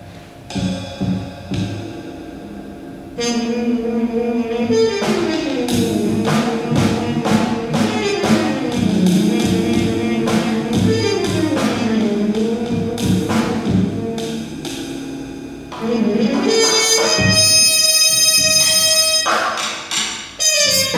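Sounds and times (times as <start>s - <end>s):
drum and cymbal strikes: 0.0s - 3.6s, 4.7s - 20.9s
trumpet held notes: 3.2s - 14.5s, 15.7s - 19.7s, 20.4s - 20.9s.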